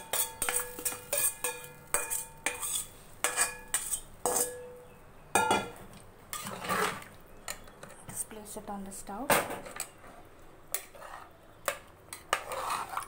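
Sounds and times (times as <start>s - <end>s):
metal cookware clanking: 0.0s - 8.0s.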